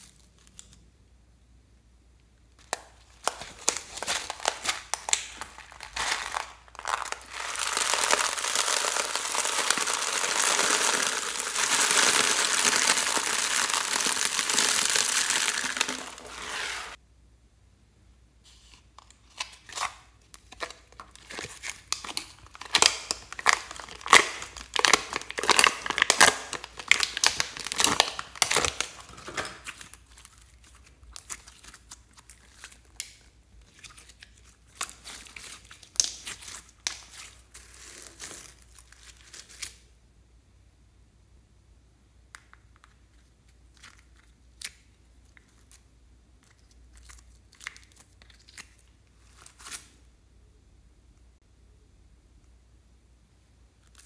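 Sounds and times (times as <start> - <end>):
beads rattling into dish: 6.0 - 16.5.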